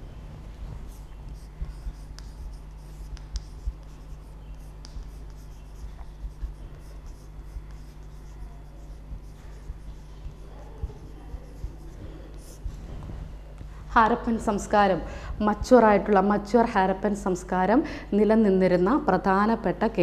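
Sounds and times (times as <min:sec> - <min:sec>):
steady low hum: 0:00.0 - 0:20.0
chalk scratching on blackboard: 0:00.7 - 0:13.0.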